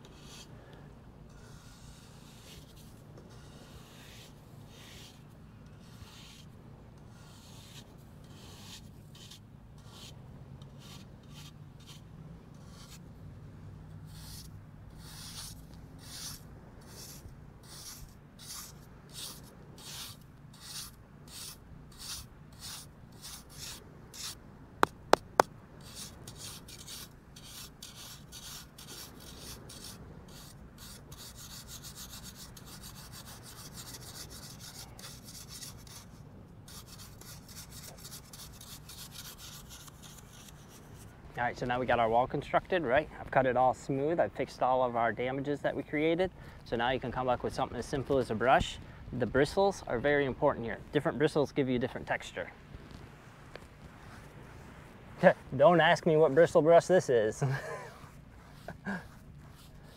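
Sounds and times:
hand tool scraping damp sand: 0.0s - 0.5s, 1.3s - 13.0s, 14.1s - 42.1s, 55.2s - 59.9s.

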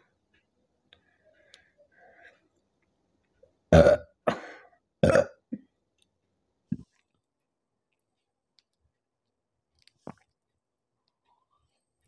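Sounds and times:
woman burping: 3.7s - 4.4s, 5.0s - 5.6s.

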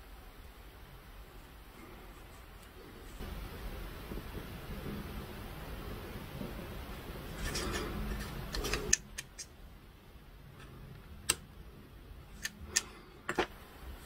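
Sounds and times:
handling rustle: 7.3s - 9.0s.

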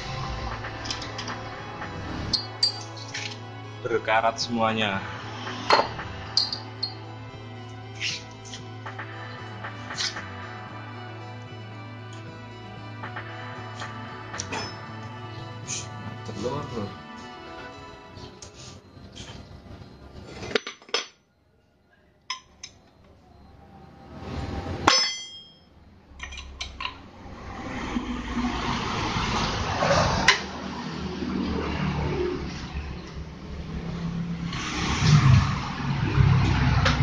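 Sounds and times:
steady rushing noise: 0.0s - 2.3s.

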